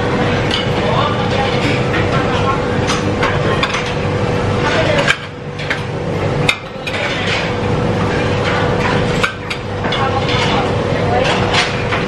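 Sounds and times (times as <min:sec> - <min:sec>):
restaurant din: 0:00.0 - 0:12.0
plates and chopsticks clinking: 0:04.6 - 0:12.0.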